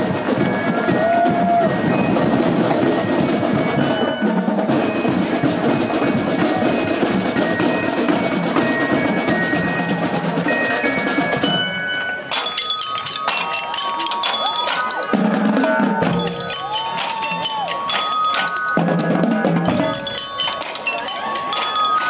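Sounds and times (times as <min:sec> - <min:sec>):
snare drums playing rhythm: 0:12.3 - 0:22.0.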